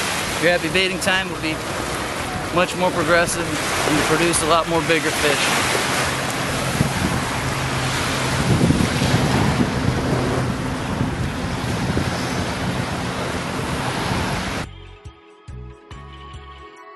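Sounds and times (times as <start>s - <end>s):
breaking surf: 0.0s - 14.6s
wind on microphone: 0.0s - 14.7s.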